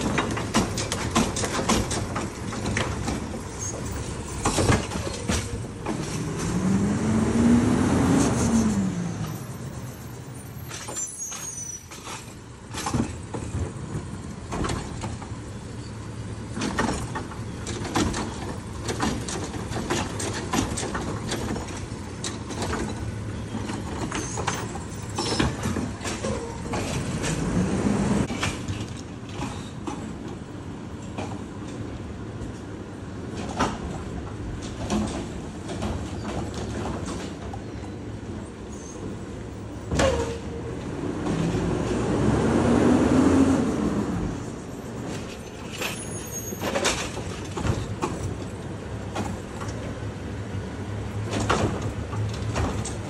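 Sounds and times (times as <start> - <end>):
metal clanks and knocks: 0.0 - 6.6
garbage truck engine and hydraulics: 0.0 - 53.0.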